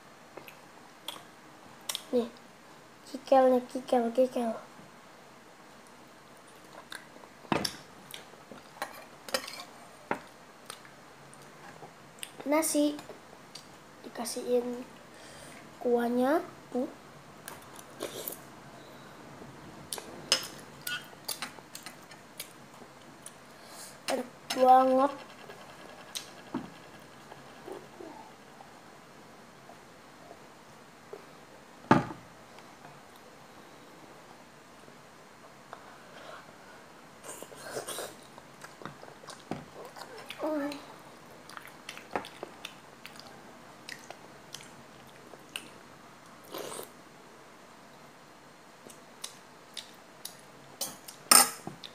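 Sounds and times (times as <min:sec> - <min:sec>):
chewing and mouth noises: 0:38.3 - 0:45.8.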